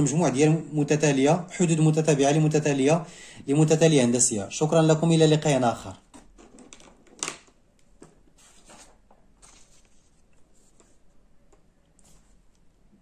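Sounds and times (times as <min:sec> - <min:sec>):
paper rustling: 0:08.0 - 0:11.1.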